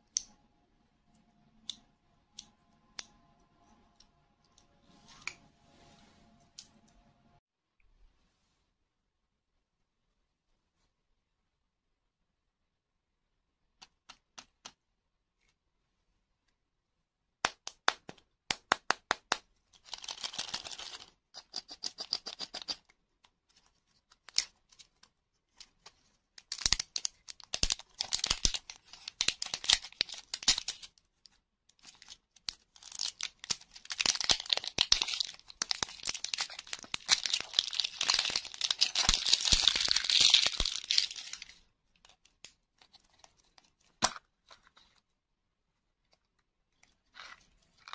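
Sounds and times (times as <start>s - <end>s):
plastic wrapper crinkling: 24.3s - 30.9s, 31.8s - 44.1s.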